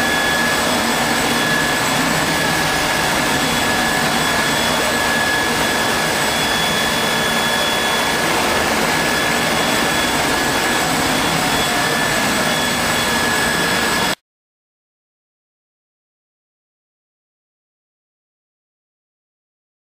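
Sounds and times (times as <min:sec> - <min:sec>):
milling machine hiss and whine: 0:00.0 - 0:14.2.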